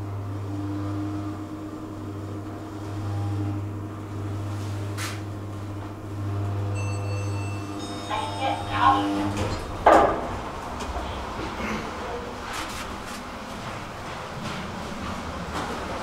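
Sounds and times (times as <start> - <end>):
elevator drive hum: 0.0 - 16.0.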